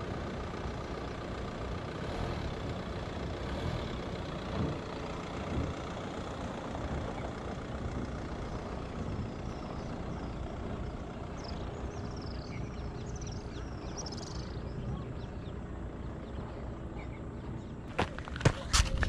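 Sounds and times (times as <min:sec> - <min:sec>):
car engine and tyres on sand: 0:00.0 - 0:19.0
bird chirping: 0:09.2 - 0:18.3.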